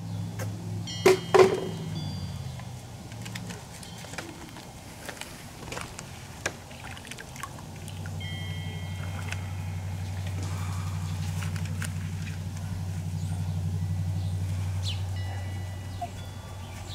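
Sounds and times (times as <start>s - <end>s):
steady low hum: 0.0s - 16.9s
soapy water sloshing and dripping: 4.6s - 8.2s
small splashes: 5.8s - 12.4s.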